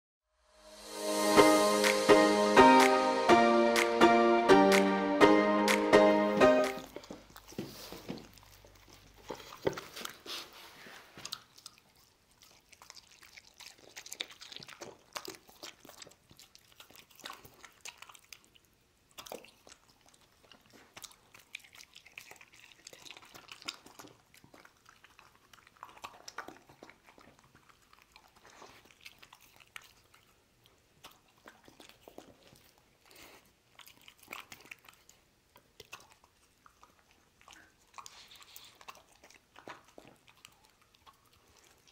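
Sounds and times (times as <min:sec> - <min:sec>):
dog chewing and crunching food: 0:06.8 - 0:41.9.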